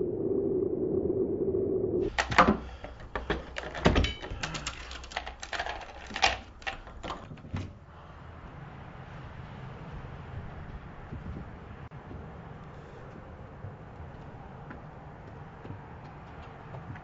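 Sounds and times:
low hum: 0:00.0 - 0:03.2
door lock clicks and chain rattles: 0:02.1 - 0:07.8.

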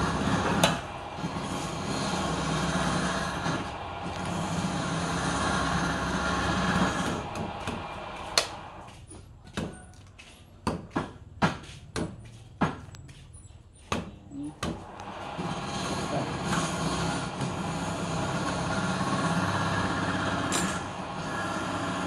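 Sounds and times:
wood lathe rumble: 0:00.0 - 0:08.9, 0:14.8 - 0:22.0.

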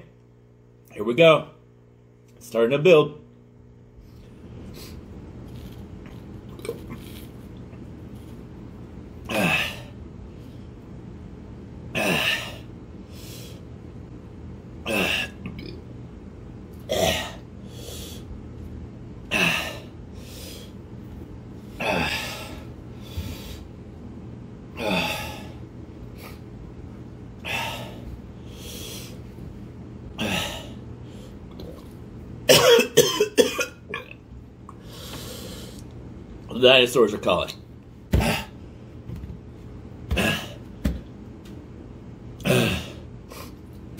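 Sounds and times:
man coughing hard: 0:16.9 - 0:17.4, 0:32.5 - 0:34.2, 0:38.1 - 0:38.6, 0:40.1 - 0:40.6.

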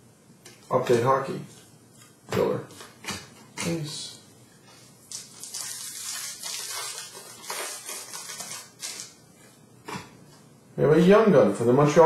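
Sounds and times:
foil wrapper crinkling and tearing: 0:05.0 - 0:09.2.

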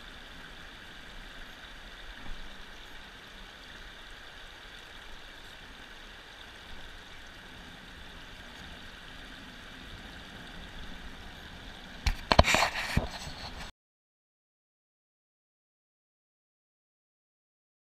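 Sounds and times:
river water over stones: 0:00.0 - 0:13.7.

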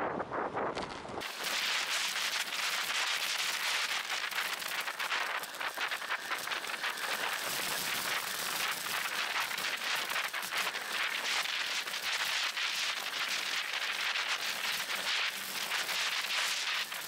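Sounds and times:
wind rushing on microphone: 0:00.0 - 0:07.5.

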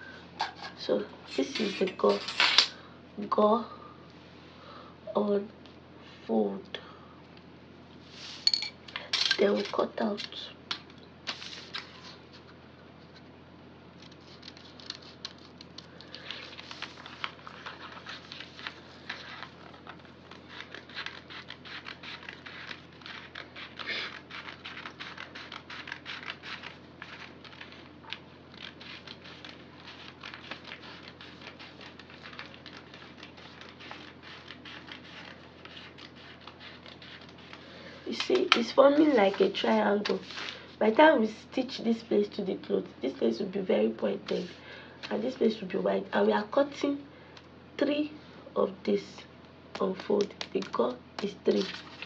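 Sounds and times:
paper rustling: 0:11.3 - 0:13.2, 0:14.0 - 0:40.9, 0:44.2 - 0:45.4, 0:49.8 - 0:52.0
scissors snipping paper: 0:14.0 - 0:40.4, 0:49.8 - 0:52.0.

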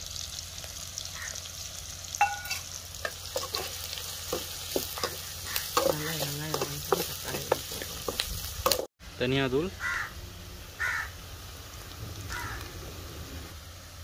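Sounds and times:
onions sizzling in oil: 0:00.0 - 0:14.0
ladle scraping and tapping pan: 0:02.2 - 0:08.8.

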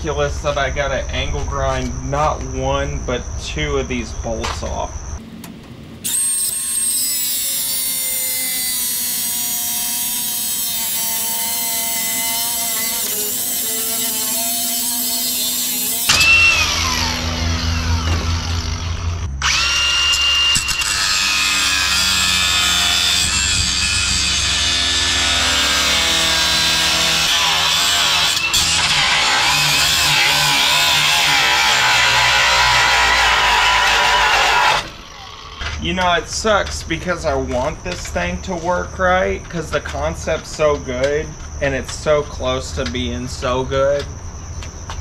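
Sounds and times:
angle grinder grinding metal: 0:06.0 - 0:36.0.

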